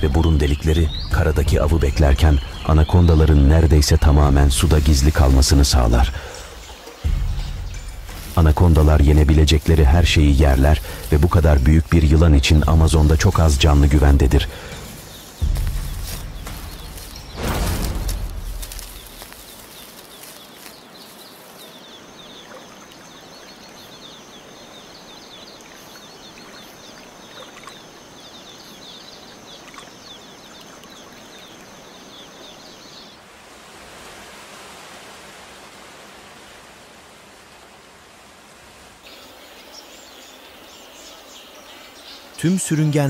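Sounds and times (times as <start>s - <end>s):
even hiss: 0.0s - 22.2s
rapid chirping calls: 0.0s - 33.1s
high whine: 4.1s - 19.5s
rushing noise: 4.2s - 20.3s.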